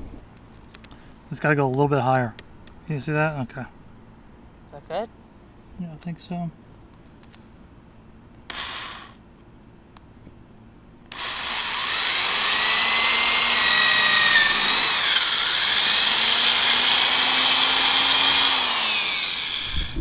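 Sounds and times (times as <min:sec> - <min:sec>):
electric drill boring metal pipe: 0:08.5 - 0:09.2, 0:11.1 - 0:20.0.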